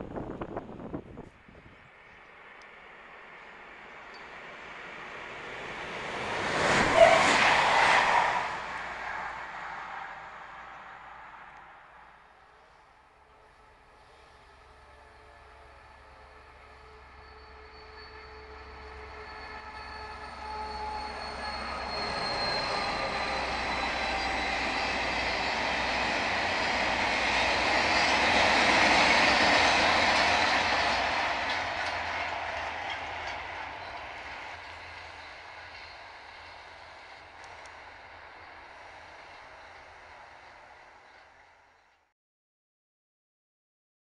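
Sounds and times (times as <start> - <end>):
rolling noise of train wagons: 0.0 - 42.1
locomotive tones falling in pitch: 15.3 - 26.3.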